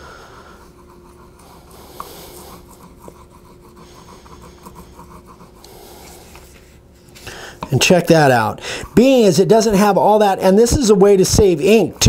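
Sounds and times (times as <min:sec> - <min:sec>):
tool tip rubbing over paper: 0:00.6 - 0:07.3, 0:10.7 - 0:12.0.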